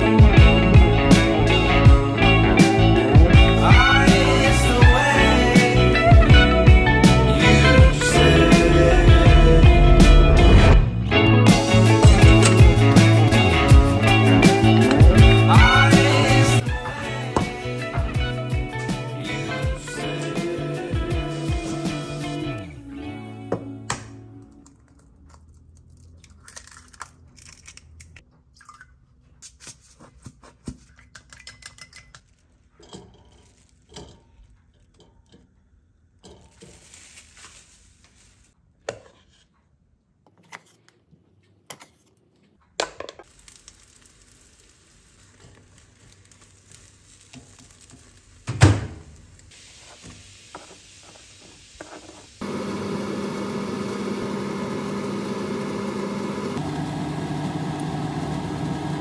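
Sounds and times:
egg cracked into a bowl: 0:23.9 - 0:28.2
onions sizzling in a pan: 0:36.5 - 0:38.5, 0:43.2 - 0:54.7.

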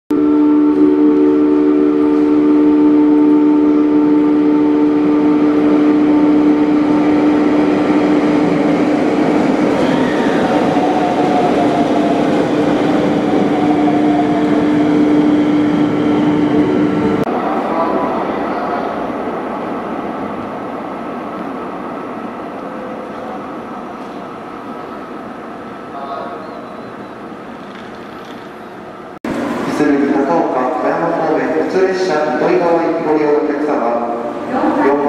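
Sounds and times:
electric train humming: 0:00.1 - 0:35.0.

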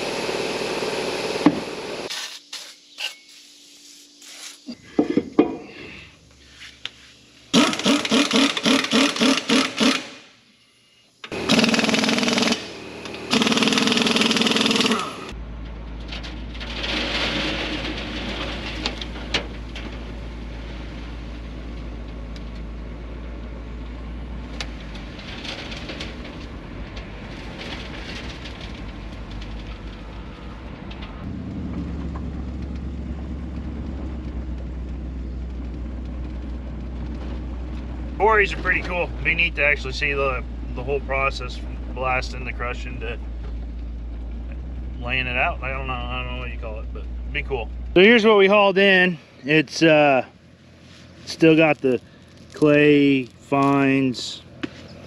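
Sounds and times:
machine engine running: 0:00.0 - 0:02.1, 0:11.3 - 0:15.8
impact wrench rattling: 0:07.6 - 0:10.1.

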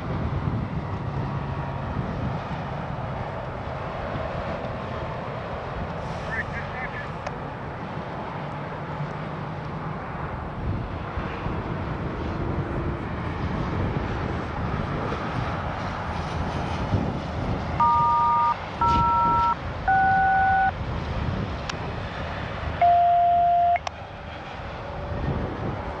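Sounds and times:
wind noise: 0:00.0 - 0:08.4, 0:09.8 - 0:26.0
touch-tone dialing beeps: 0:17.8 - 0:20.7, 0:22.8 - 0:23.9.

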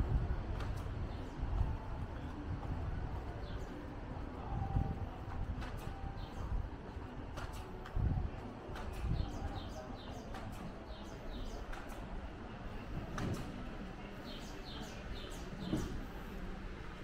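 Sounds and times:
low outdoor rumble: 0:00.0 - 0:17.0
small birds chirping: 0:06.1 - 0:06.6, 0:08.9 - 0:12.1, 0:14.1 - 0:16.2.

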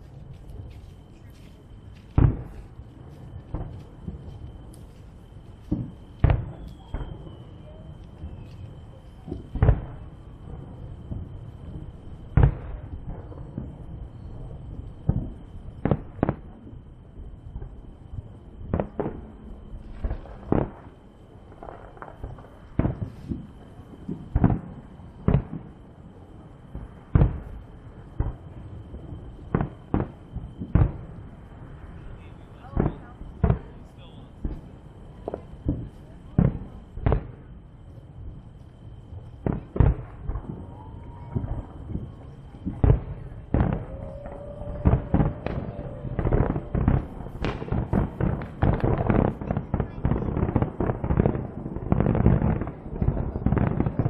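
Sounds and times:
fireworks bangs: 0:00.0 - 0:54.0
low rumble: 0:24.7 - 0:54.0.

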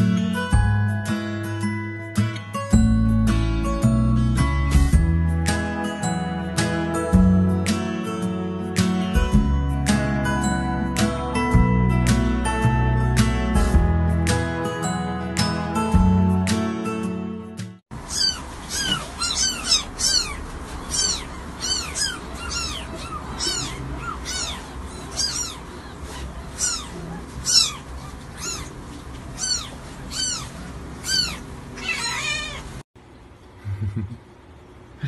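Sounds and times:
music: 0:00.0 - 0:17.8
kittens mewing: 0:18.0 - 0:32.8.

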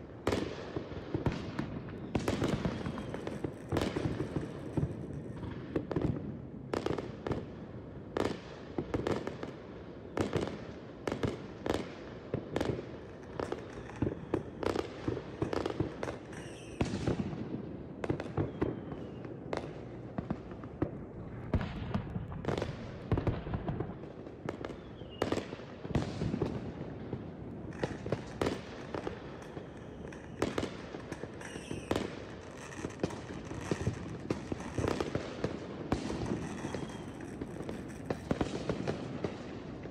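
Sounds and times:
fireworks bangs and crackling: 0:00.0 - 0:39.9
firework whistles: 0:02.0 - 0:04.0, 0:16.3 - 0:17.2, 0:18.2 - 0:19.3, 0:24.7 - 0:25.3, 0:31.3 - 0:34.9, 0:36.0 - 0:38.3.

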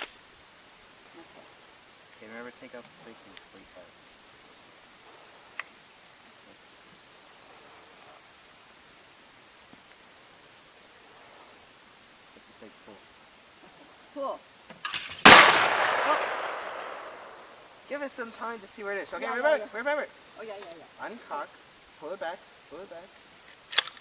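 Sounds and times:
high insect chirring: 0:00.0 - 0:24.0
loud shotgun shot: 0:14.8 - 0:17.4.

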